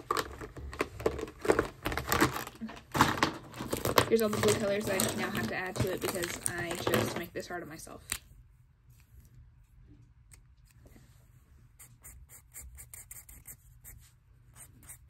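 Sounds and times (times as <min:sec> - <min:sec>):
marker scratching on paper: 0:11.8 - 0:15.0.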